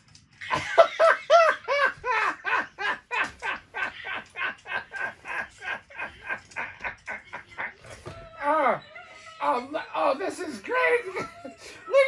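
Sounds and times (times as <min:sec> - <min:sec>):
man laughing hard: 0:00.5 - 0:07.7.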